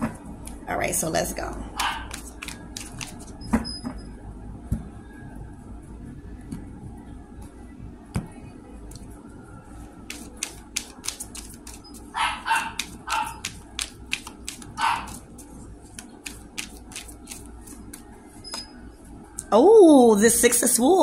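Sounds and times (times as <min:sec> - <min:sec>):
cards shuffled by hand: 0:01.8 - 0:03.4, 0:10.1 - 0:18.1.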